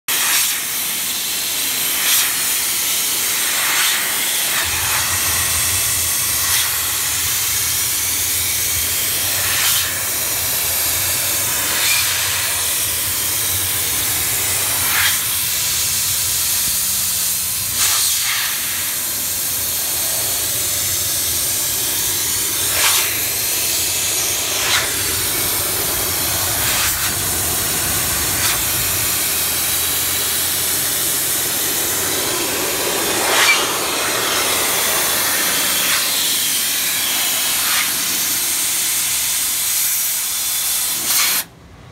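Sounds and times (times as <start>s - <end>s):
steam hissing from nozzle: 0.1s - 41.6s.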